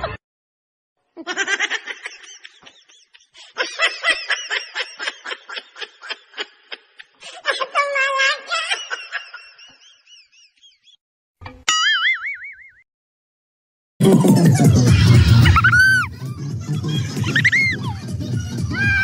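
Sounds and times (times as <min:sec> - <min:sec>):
high-pitched laughter: 0:01.2 - 0:10.8, 0:14.0 - 0:19.0.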